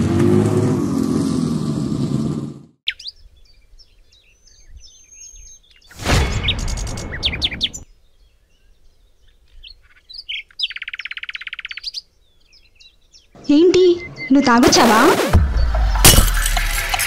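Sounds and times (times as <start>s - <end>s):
small birds chirping: 2.8s - 15.8s
bird trill: 2.9s - 14.6s.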